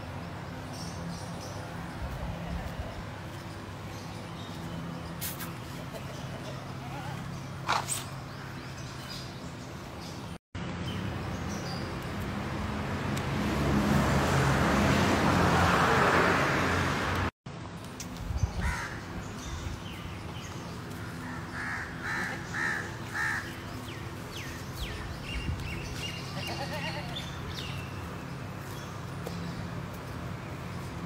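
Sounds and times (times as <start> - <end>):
birds chirping: 0.0 - 12.5, 18.2 - 31.0
birds calling harshly: 0.5 - 11.9, 18.4 - 30.9.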